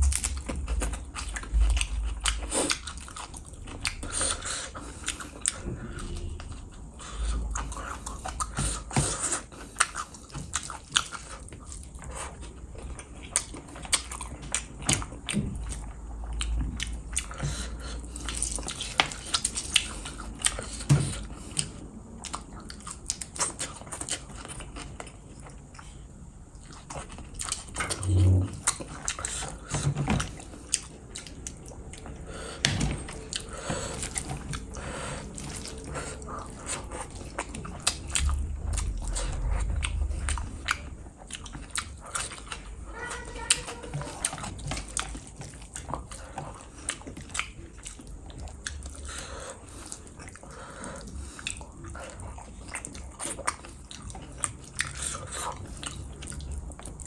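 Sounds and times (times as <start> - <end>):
wet chewing and lip smacking: 0.0 - 57.0
low thumps: 36.5 - 42.8.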